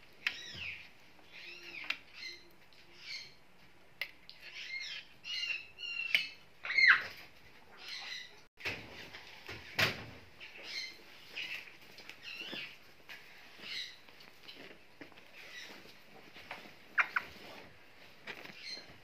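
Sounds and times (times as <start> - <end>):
parrot squawking and chirping: 4.4 - 8.4, 10.4 - 12.8, 13.6 - 14.0, 16.9 - 17.4.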